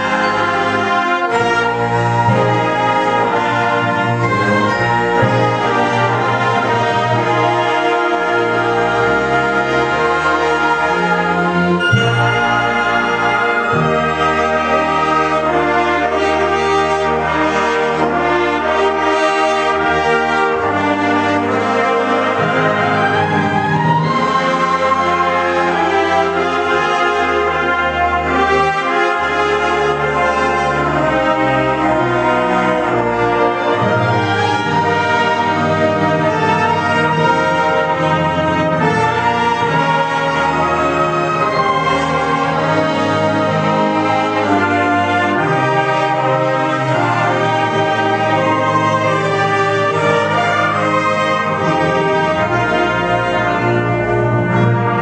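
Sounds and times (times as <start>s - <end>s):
wind band playing: 0.0s - 55.0s.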